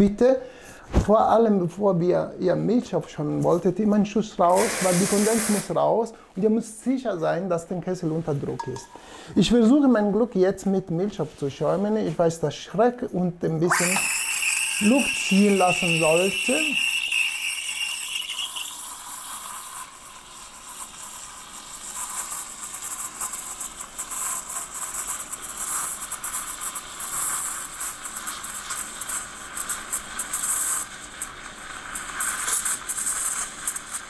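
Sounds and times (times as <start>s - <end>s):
steam wand frothing milk: 4.5s - 5.7s, 13.7s - 34.0s
brief high whistle: 13.7s - 18.7s.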